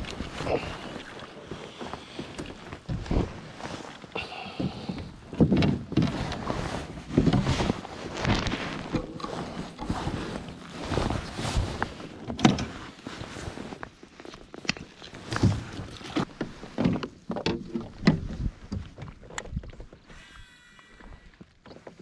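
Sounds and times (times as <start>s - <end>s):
gear rustling: 6.0s - 16.6s.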